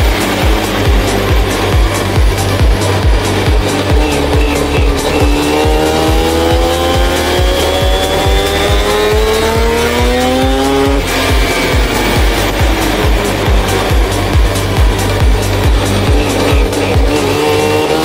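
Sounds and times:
car engine accelerating: 0.0s - 18.0s
music with drum beat: 0.0s - 18.0s.

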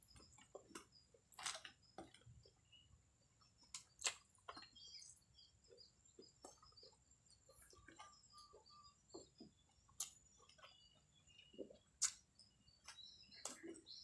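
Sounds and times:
faint chewing mouth clicks: 5.8s - 14.0s.

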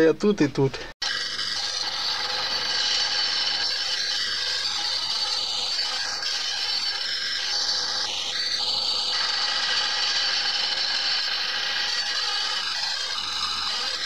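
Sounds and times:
wood lathe tool shaving wood: 1.0s - 14.0s.

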